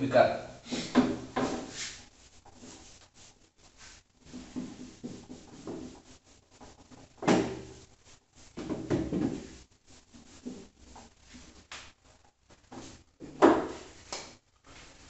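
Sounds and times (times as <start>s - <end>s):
eraser rubbing on whiteboard: 0.7s - 8.6s, 9.4s - 11.7s.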